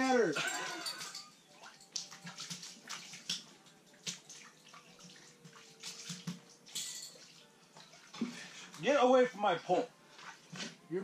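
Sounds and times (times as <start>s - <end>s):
water splashing: 0.0s - 10.5s
fish slapping on wet ice: 5.0s - 6.5s.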